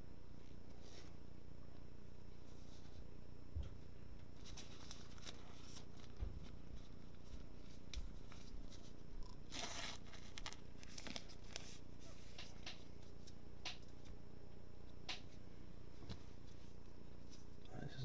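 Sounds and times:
card handling clicks and rustles: 0:04.2 - 0:14.2.

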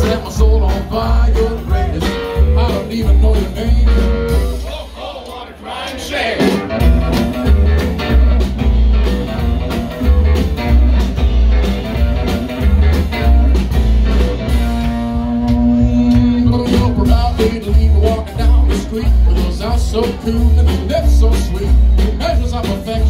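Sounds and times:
electric guitars: 0:00.0 - 0:04.7, 0:06.4 - 0:23.0
upright bass: 0:00.0 - 0:05.0, 0:06.4 - 0:23.0
drums: 0:00.0 - 0:23.0.

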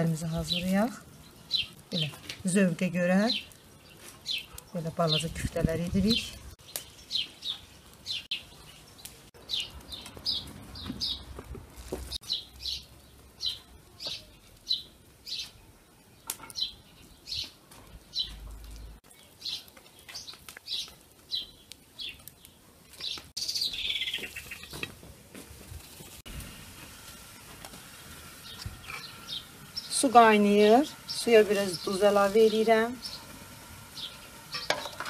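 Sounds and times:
small bird chirping: 0:06.1 - 0:11.3, 0:12.1 - 0:15.6, 0:16.2 - 0:24.8.

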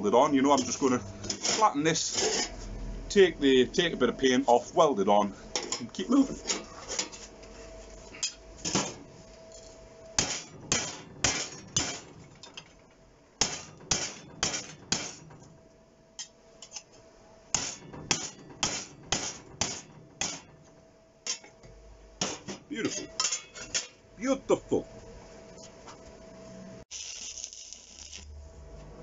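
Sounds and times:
hammer striking steel: 0:10.2 - 0:12.2, 0:13.4 - 0:15.2, 0:17.5 - 0:20.5, 0:22.2 - 0:24.0.

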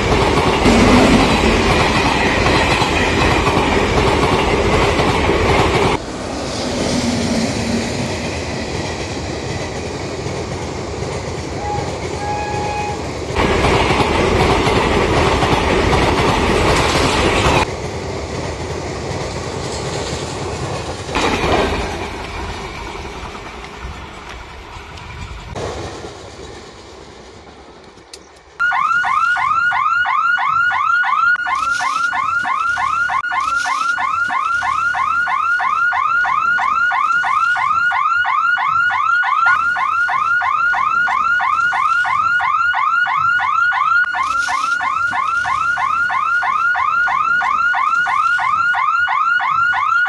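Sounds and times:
train rumble: 0:00.0 - 0:28.6.

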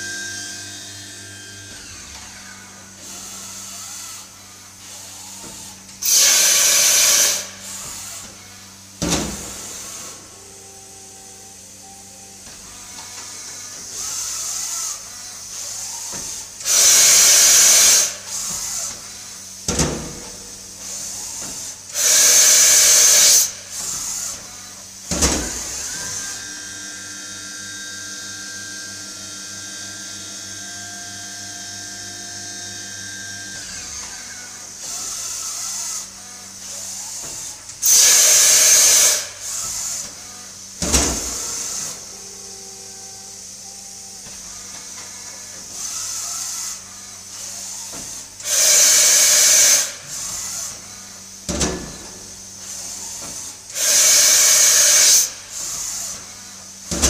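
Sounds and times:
motor whine: 0:00.0 - 0:57.0
loud hissing blasts: 0:53.8 - 0:55.3.

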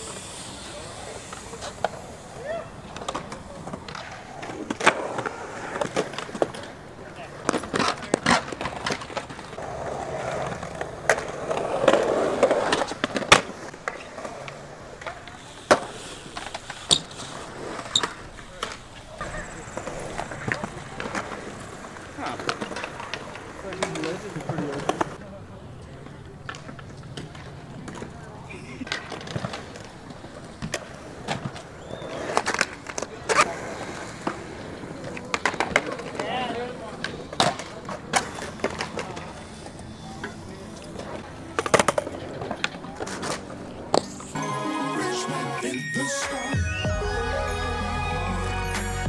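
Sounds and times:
faint voices: 0:00.0 - 0:12.9, 0:18.1 - 0:49.0
skateboard impact clacks: 0:00.0 - 0:25.2, 0:26.0 - 0:44.2
skateboard wheels rolling on concrete: 0:00.0 - 0:45.3.

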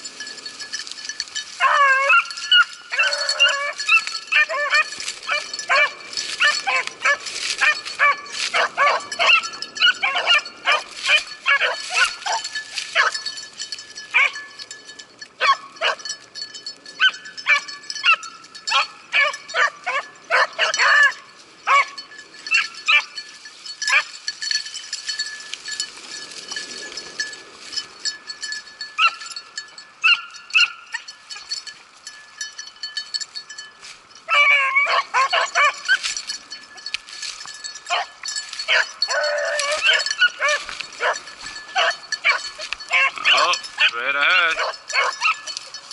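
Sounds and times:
beagles baying and barking: 0:00.0 - 0:32.0, 0:32.9 - 0:45.9.

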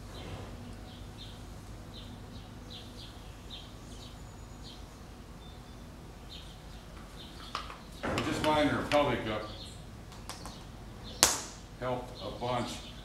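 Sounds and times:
low steady hum: 0:00.0 - 0:13.0
small bird chirping: 0:00.1 - 0:08.0.

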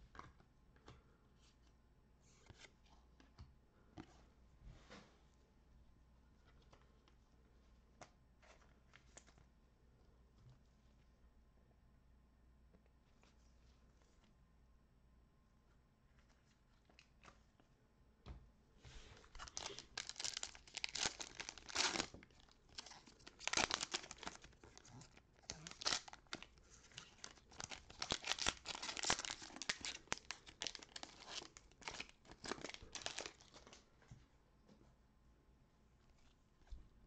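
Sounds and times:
foil wrapper tearing and crinkling: 0:19.4 - 0:33.6.

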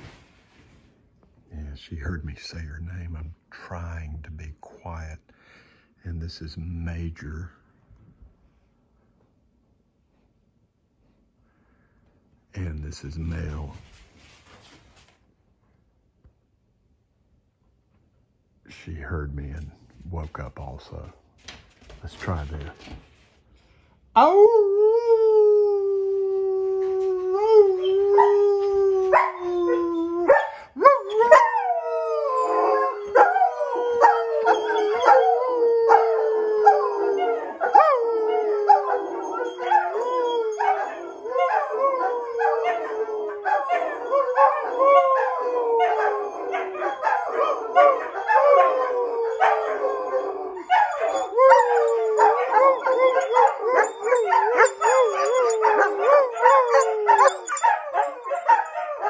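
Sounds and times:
dogs howling: 0:24.2 - 0:59.0.

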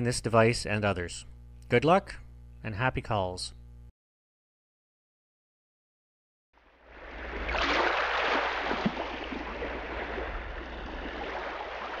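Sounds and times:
waves washing onto pebble beach: 0:09.5 - 0:12.0.

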